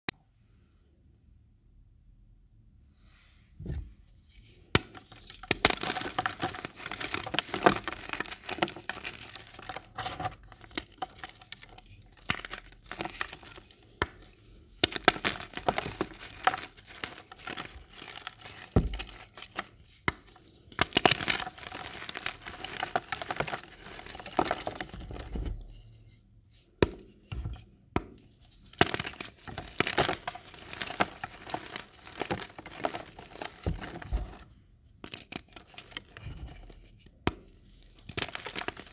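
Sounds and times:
chalk blocks crunching by hand: 4.8 - 14.2, 20.8 - 25.3, 28.8 - 34.4, 38.0 - 38.9.

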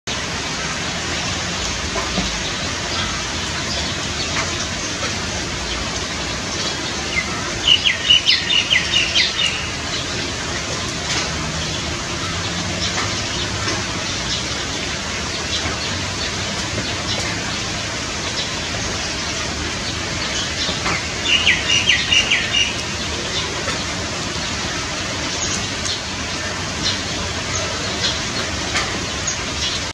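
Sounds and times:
steady rain hiss: 0.1 - 29.9
bird chirping rapidly: 7.2 - 9.8, 20.3 - 23.0.

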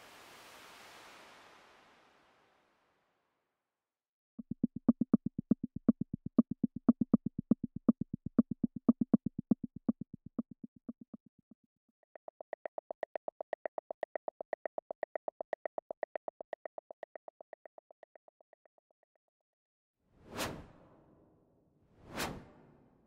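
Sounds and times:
higher wooden clicks pattern: 4.4 - 19.0.

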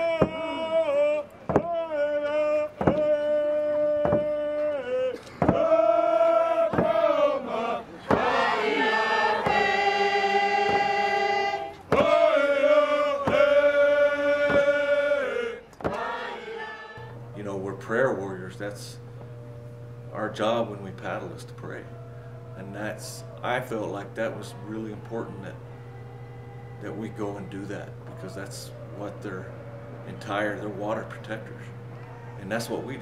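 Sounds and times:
voices singing a chant: 0.0 - 19.3, 20.1 - 33.0
slow steady drum beat: 10.5 - 11.2.

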